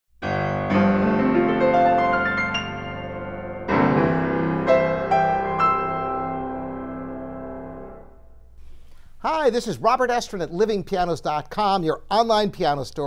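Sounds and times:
solo piano: 0.2s - 8.6s.

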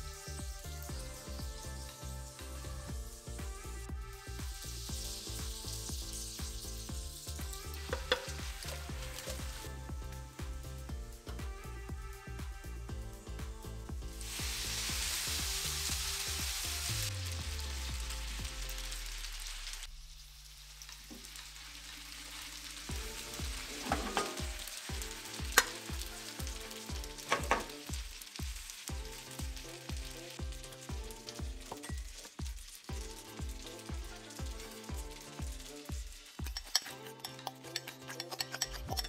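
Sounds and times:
pasta sizzling in frying pan: 0.0s - 12.1s, 13.0s - 39.0s
background music with steady beat: 0.0s - 20.0s, 22.8s - 39.0s
tongs clicking against pan: 7.8s - 9.4s, 25.3s - 27.8s, 36.3s - 39.0s.

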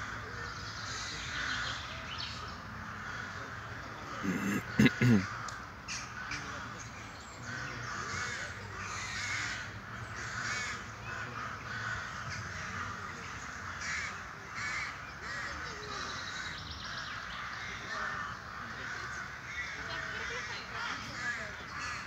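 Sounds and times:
crows cawing: 2.8s - 6.7s, 7.5s - 16.2s, 17.4s - 22.0s.

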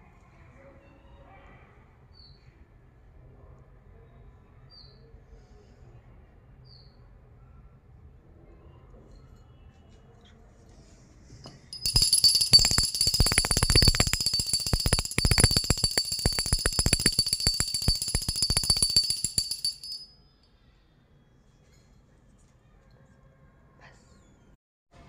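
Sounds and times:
hand bell rung rapidly: 11.8s - 20.1s.

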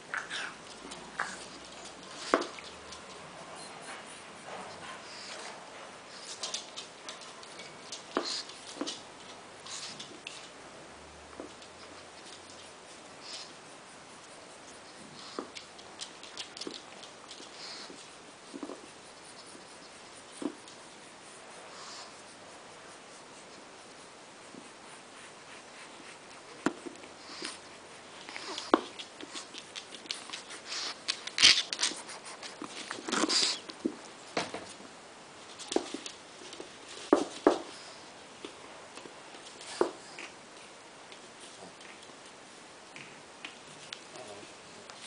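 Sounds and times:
paws clicking on wooden floor: 0.2s - 3.3s, 15.2s - 19.6s, 25.6s - 34.8s, 35.5s - 42.3s
dog sniffing: 12.6s - 33.8s.

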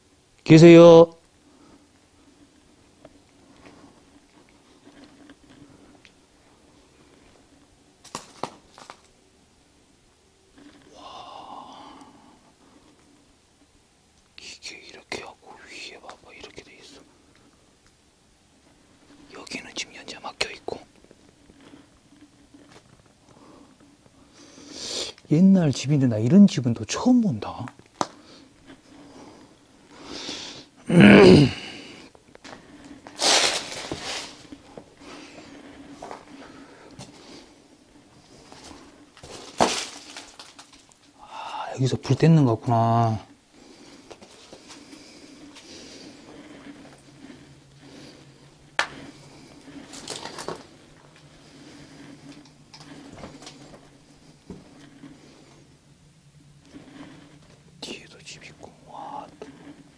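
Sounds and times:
faint steady hum: 0.0s - 59.9s
loud noisy sniff: 24.3s - 25.2s, 30.0s - 32.1s, 33.0s - 36.0s
crackling taps: 27.6s - 28.2s
footsteps on straw and debris: 33.1s - 34.8s, 38.5s - 40.8s.

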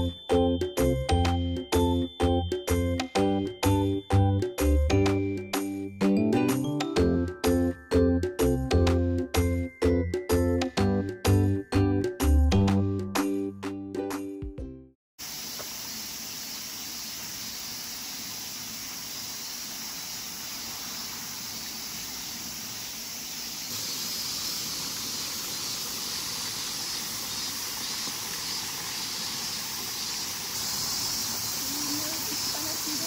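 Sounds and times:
flowing spring water: 15.2s - 33.0s.

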